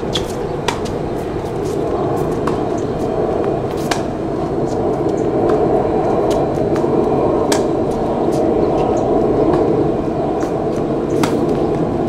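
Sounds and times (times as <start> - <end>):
steady low drone: 0.0 - 12.0
ball bouncing on hard court: 0.1 - 1.0, 11.1 - 11.6
tennis ball struck by rackets: 0.1 - 1.0, 1.6 - 2.6, 3.7 - 4.2, 7.4 - 7.7, 11.2 - 11.6.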